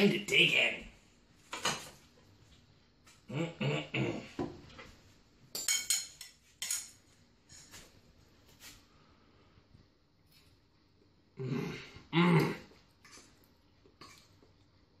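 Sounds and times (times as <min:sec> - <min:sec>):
metal spoon clinking on bowl: 0:05.5 - 0:07.0.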